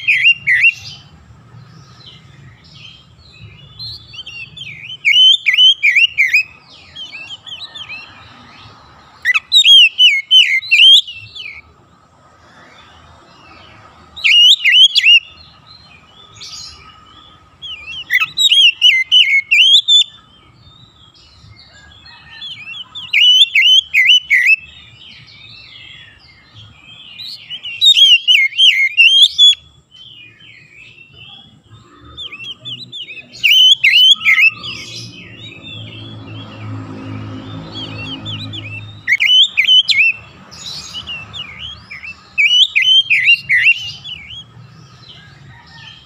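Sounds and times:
bird singing whistled phrases: 0:00.0 - 0:00.9, 0:03.8 - 0:08.0, 0:09.3 - 0:11.6, 0:14.2 - 0:15.4, 0:17.7 - 0:20.2, 0:22.3 - 0:24.7, 0:27.2 - 0:29.6, 0:32.2 - 0:35.9, 0:37.8 - 0:40.2, 0:40.8 - 0:44.5.

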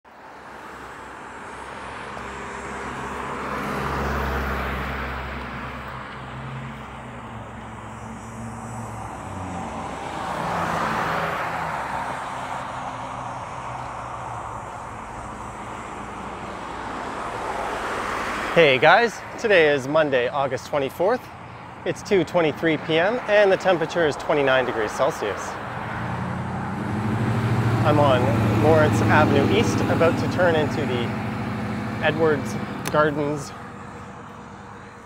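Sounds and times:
vehicles passing by: 0:00.1 - 0:35.0.

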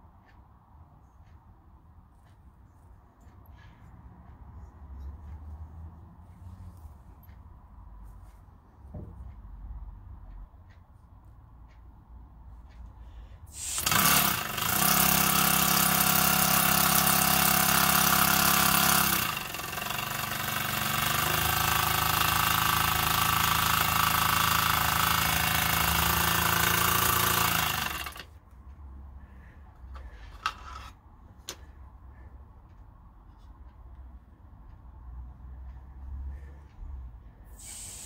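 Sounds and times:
model steam engine buzzing and hissing: 0:13.5 - 0:28.2, 0:37.5 - 0:38.0.

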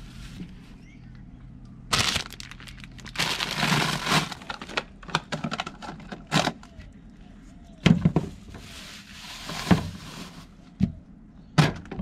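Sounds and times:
plastic bags crinkling: 0:01.9 - 0:06.0.

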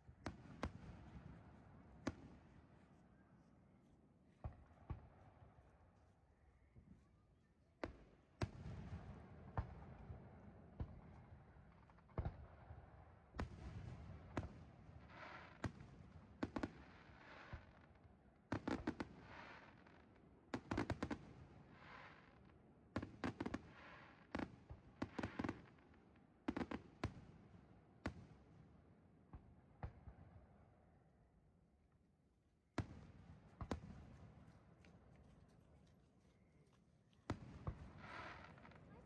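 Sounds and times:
fireworks bursting with bangs: 0:32.8 - 0:34.6, 0:37.2 - 0:39.0.

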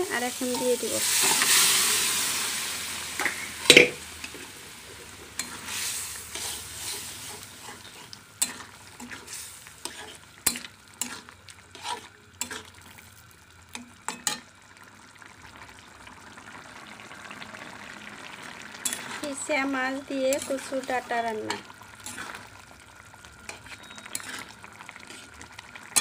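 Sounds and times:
food sizzling in a wok: 0:00.0 - 0:26.0
spatula scraping a wok: 0:00.3 - 0:02.1, 0:04.9 - 0:12.7, 0:20.2 - 0:22.5, 0:23.5 - 0:25.4.

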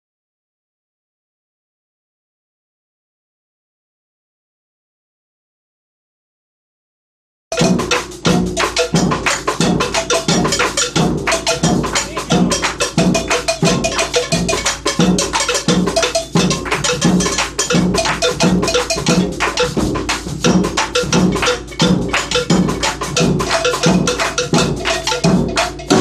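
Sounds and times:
fast clicking drum strokes: 0:07.5 - 0:26.0
low drum beat: 0:07.5 - 0:26.0.

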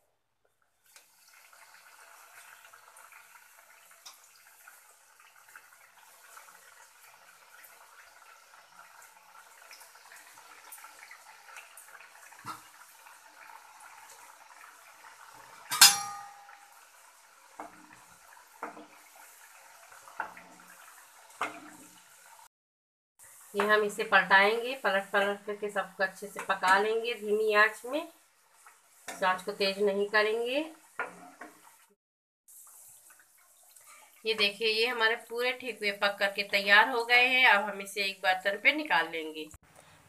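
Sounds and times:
dough sizzling in oil: 0:00.5 - 0:22.5, 0:23.2 - 0:37.8
utensil clinking on pan: 0:15.7 - 0:16.7.

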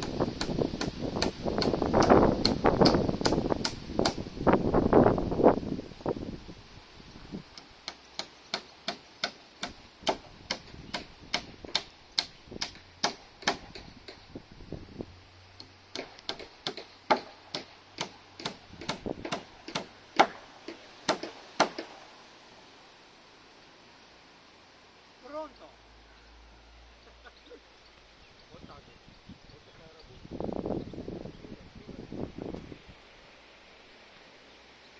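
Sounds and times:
hammer driving nails into wood: 0:07.6 - 0:14.2, 0:15.9 - 0:22.0.

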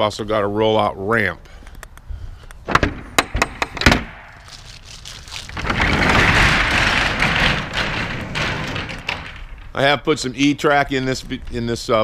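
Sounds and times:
roll-up door rattling rumble: 0:03.8 - 0:10.4.

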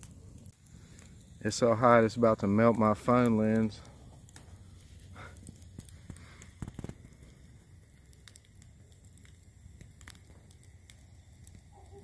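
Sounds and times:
campfire logs crackling: 0:00.0 - 0:12.0
sharp pops of fire: 0:00.0 - 0:12.0.

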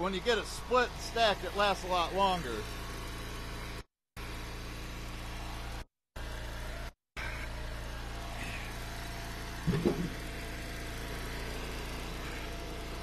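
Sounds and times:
small gas engine running: 0:00.0 - 0:13.0
wood knocking: 0:09.7 - 0:10.2.

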